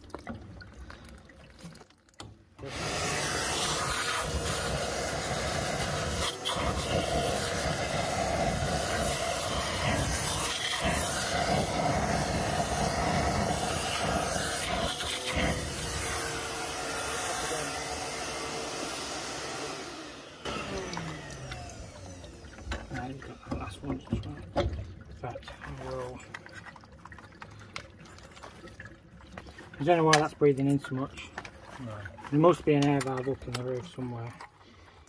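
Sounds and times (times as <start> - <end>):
wet vac motor running: 2.6 - 24.4.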